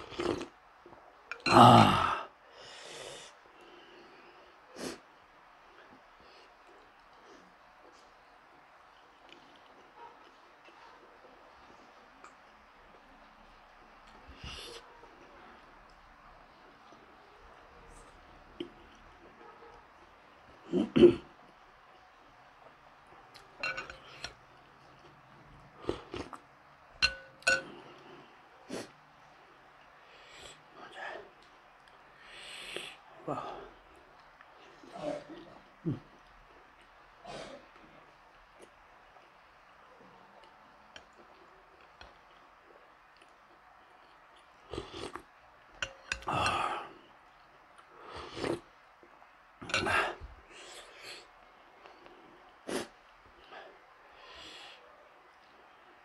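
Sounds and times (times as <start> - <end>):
spoon clinking against ceramic bowl: 23.6 - 24.4, 27.0 - 27.8, 45.7 - 46.6, 49.6 - 50.0.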